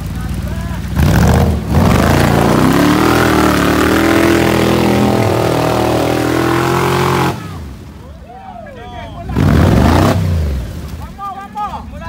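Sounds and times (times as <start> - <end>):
buggy engine revving hard: 0.8 - 7.8, 9.3 - 10.7.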